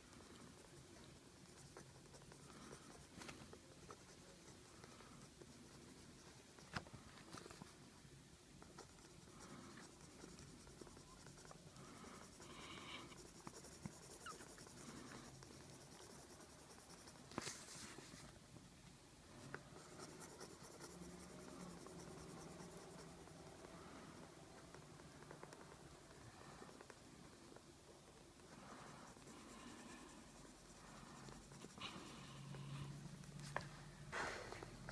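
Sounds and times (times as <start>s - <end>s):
pencil scratching on paper: 0.0s - 6.8s, 8.6s - 18.2s, 19.4s - 25.5s, 28.4s - 33.4s.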